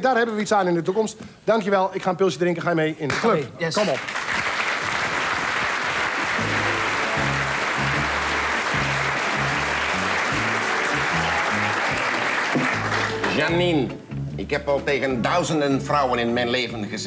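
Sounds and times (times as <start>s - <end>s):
studio audience applauding: 3.8s - 13.5s
music with bass line: 6.2s - 16.2s.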